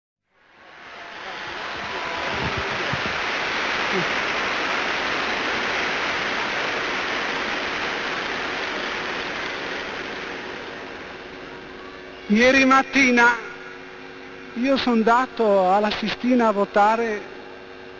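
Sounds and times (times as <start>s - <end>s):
crowd applauding and cheering: 0.4s - 12.2s.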